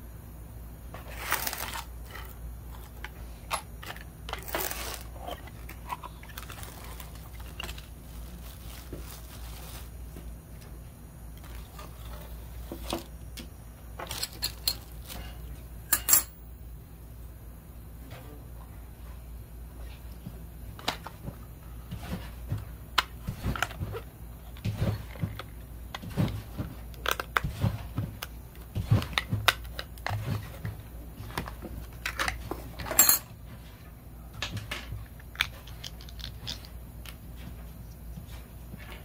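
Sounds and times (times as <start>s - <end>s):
low steady hum: 0.0s - 39.0s
snips cutting plastic packaging: 1.1s - 1.9s, 4.4s - 7.9s
plastic crackling: 3.8s - 10.2s.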